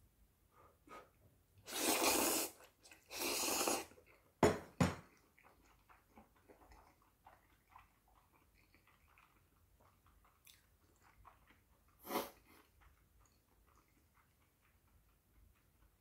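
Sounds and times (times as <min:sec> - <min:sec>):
faint chewing: 0:00.6 - 0:04.4, 0:05.0 - 0:16.0
slurping noodles: 0:01.6 - 0:04.2, 0:10.4 - 0:12.7.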